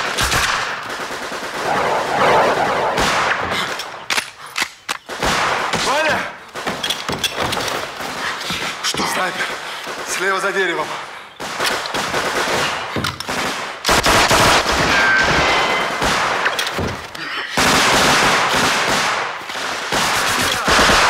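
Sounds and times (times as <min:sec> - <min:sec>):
rifle shots: 0:00.0 - 0:04.3, 0:05.0 - 0:06.8, 0:11.4 - 0:16.7, 0:17.6 - 0:21.0
machine-gun bursts: 0:11.4 - 0:16.6, 0:17.6 - 0:21.0.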